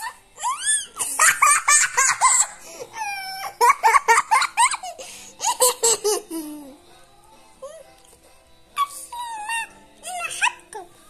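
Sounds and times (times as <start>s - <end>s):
girl giggling: 0.4s - 6.8s.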